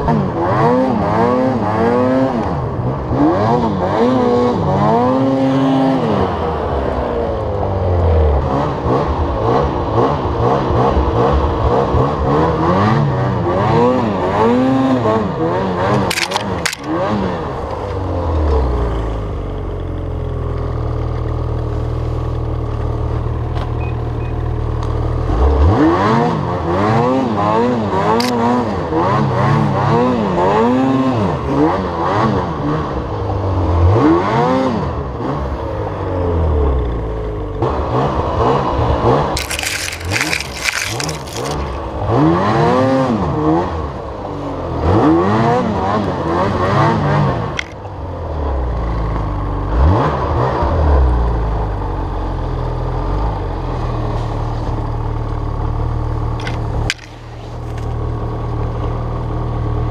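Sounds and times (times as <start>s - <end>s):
snowmobile engine revving: 0.0s - 6.4s.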